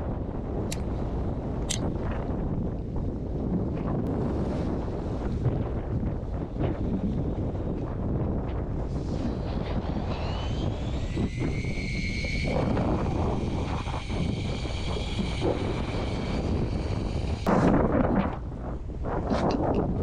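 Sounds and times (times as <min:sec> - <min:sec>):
wind on microphone: 0:00.0 - 0:20.0
low boat rumble: 0:02.3 - 0:20.0
fishing reel motor whine: 0:08.7 - 0:17.5.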